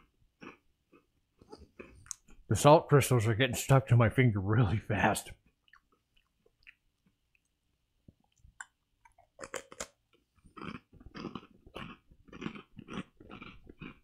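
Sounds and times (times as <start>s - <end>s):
crunchy chewing: 0.0s - 2.4s, 8.3s - 14.0s
biting rice cracker: 9.4s - 14.0s.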